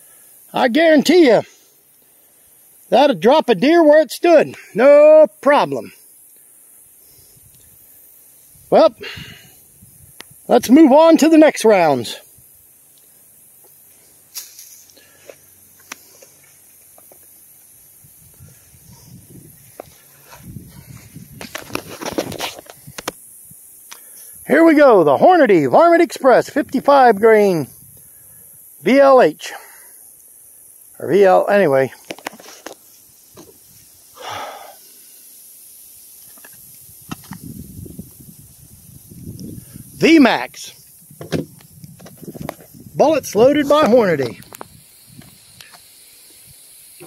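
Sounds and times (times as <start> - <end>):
high outdoor hiss: 0.0 - 47.0
breathy exhale: 9.0 - 9.7, 34.1 - 35.3.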